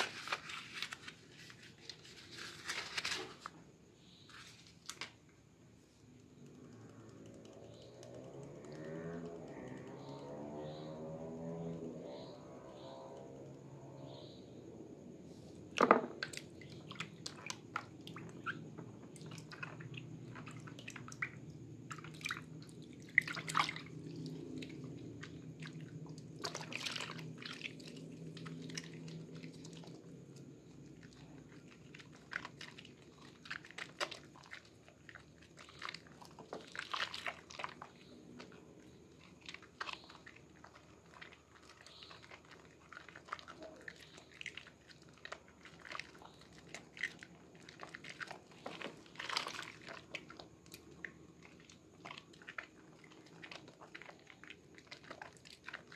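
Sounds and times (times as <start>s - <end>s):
wet hands rubbing soap: 0.0s - 3.6s, 16.4s - 55.9s
small water splashes: 6.4s - 14.2s, 15.6s - 55.9s.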